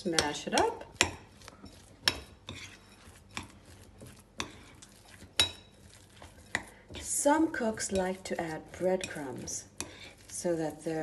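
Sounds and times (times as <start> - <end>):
metal spoon clinking on ceramic bowl: 5.4 - 5.8.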